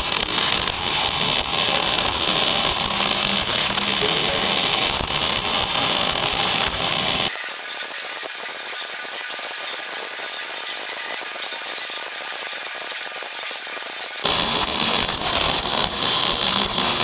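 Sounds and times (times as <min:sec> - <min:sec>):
welding arc crackle and hiss: 0:00.0 - 0:17.0.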